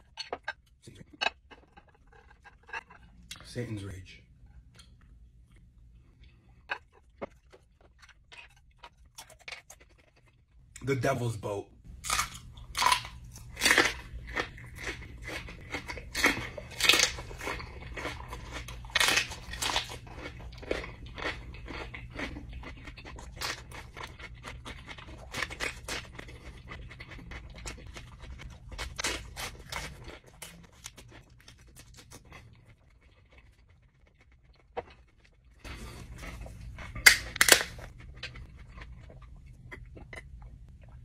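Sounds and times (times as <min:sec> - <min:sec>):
crunching and chewing chili pepper: 0:00.0 - 0:03.6, 0:04.6 - 0:10.8, 0:11.9 - 0:41.0.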